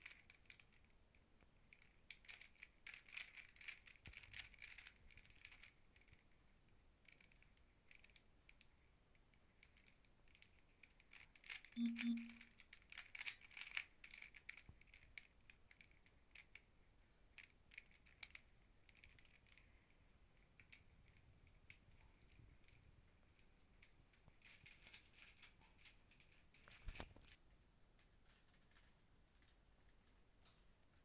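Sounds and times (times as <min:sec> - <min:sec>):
puzzle cube clicking: 0:11.8 - 0:12.4.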